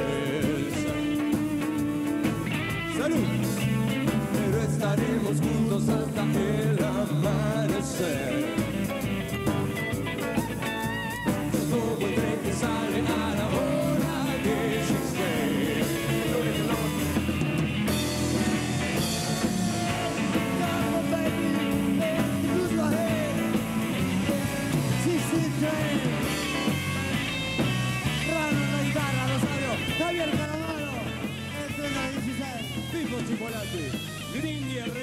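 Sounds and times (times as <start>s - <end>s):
person singing: 0.0s - 1.8s, 3.0s - 8.7s, 11.5s - 17.4s, 18.0s - 27.2s
rock band playing: 0.0s - 35.0s.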